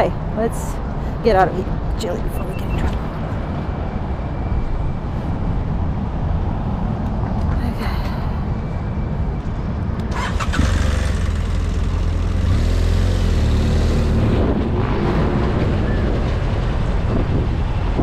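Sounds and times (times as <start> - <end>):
motorcycle engine pulling away: 10.1 - 14.4.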